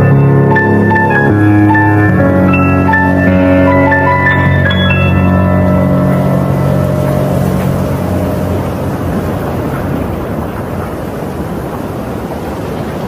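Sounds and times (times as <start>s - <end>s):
keyboard chord: 0.0s - 10.2s
loud rushing noise: 0.0s - 12.3s.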